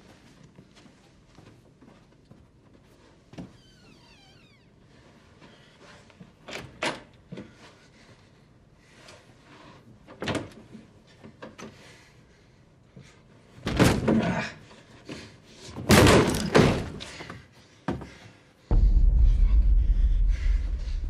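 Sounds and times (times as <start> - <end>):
doors banging and slamming: 15.8 - 17.1.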